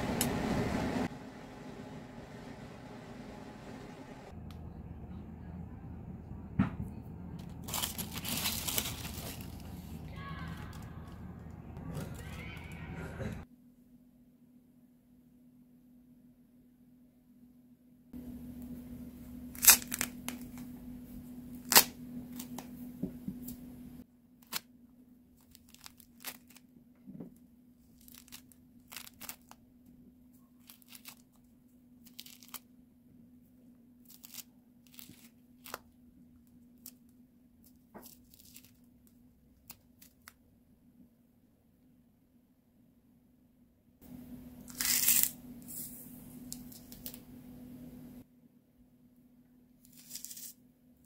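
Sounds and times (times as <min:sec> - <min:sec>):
faint steady hum: 0:00.0 - 0:11.8, 0:13.2 - 0:50.0
citrus peel tearing: 0:19.5 - 0:20.7, 0:21.5 - 0:22.7, 0:25.4 - 0:26.6, 0:27.9 - 0:29.6, 0:30.6 - 0:31.4, 0:32.0 - 0:32.6, 0:34.0 - 0:35.9, 0:38.0 - 0:38.9, 0:44.6 - 0:45.4
peel snapping: 0:19.6 - 0:20.6, 0:21.6 - 0:22.7.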